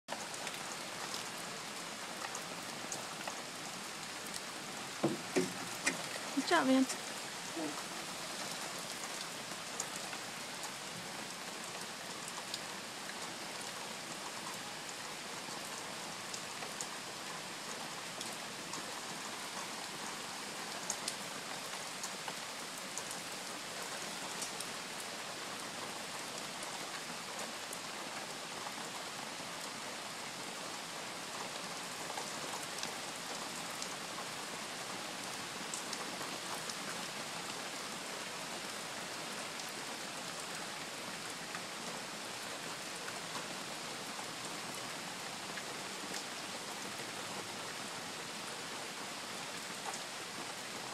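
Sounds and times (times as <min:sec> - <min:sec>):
heavy rain falling: 0:00.1 - 0:50.9
raindrops tapping: 0:04.3 - 0:07.8.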